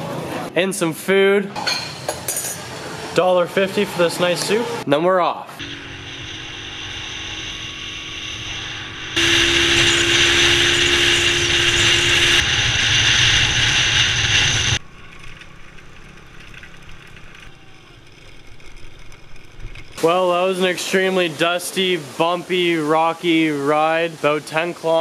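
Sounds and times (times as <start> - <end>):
motorbike engine running: 5.6 - 19.6
road and wind noise: 5.6 - 20.0
rattle: 11.2 - 20.0.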